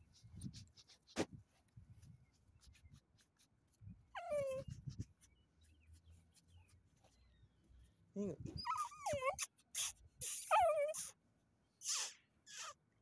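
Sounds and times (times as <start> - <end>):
small dog whining: 4.1 - 5.2, 8.2 - 11.2, 11.8 - 12.8.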